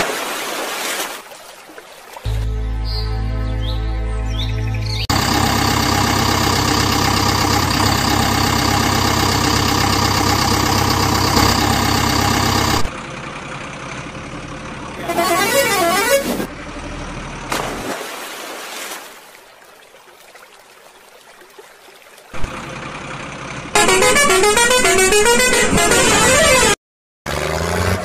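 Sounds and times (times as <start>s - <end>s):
background music: 2.3s - 5.0s
truck engine noise: 5.0s - 17.8s, 22.4s - 28.0s
truck horn blaring: 5.1s - 12.9s, 15.0s - 16.5s, 23.7s - 28.0s.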